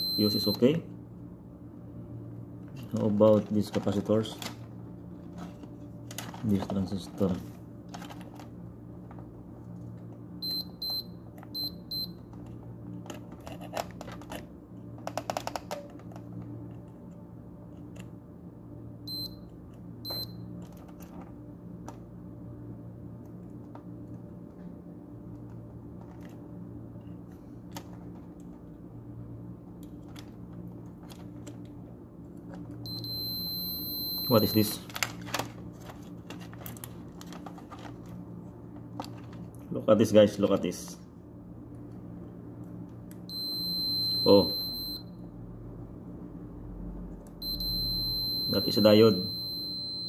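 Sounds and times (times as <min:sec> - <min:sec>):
multimeter short high beeps: 0:00.0 - 0:00.7, 0:20.1 - 0:20.4, 0:32.9 - 0:34.8, 0:43.3 - 0:45.2, 0:47.4 - 0:50.0
steady low hum: 0:00.0 - 0:50.0.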